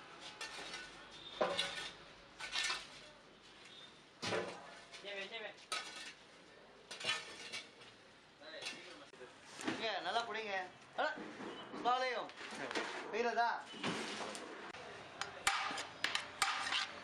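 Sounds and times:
iron rod clanking and scraping: 0:15.4 - 0:17.0.

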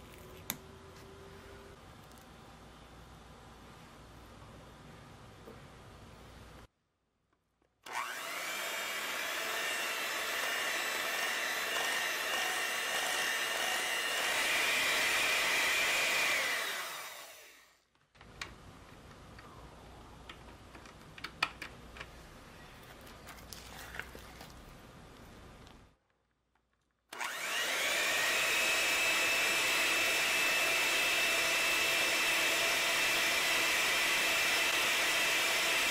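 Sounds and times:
electric hand mixer whirring: 0:07.9 - 0:17.8, 0:27.2 - 0:35.9.

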